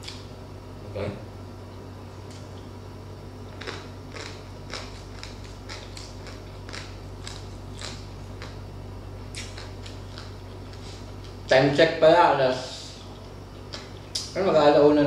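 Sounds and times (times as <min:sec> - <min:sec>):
person chewing crunchy food: 0:03.5 - 0:11.5, 0:12.9 - 0:14.3.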